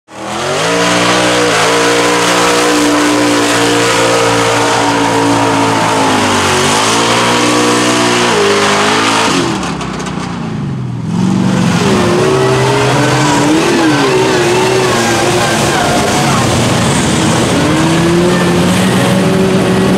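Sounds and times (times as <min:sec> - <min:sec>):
truck engines revving: 0:00.1 - 0:19.9
rushing noise: 0:11.0 - 0:19.9.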